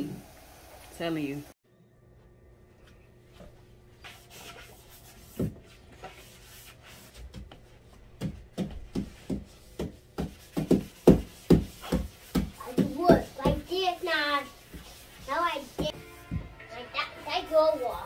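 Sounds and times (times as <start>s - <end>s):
sponge scrubbing a wall: 4.0s - 16.0s.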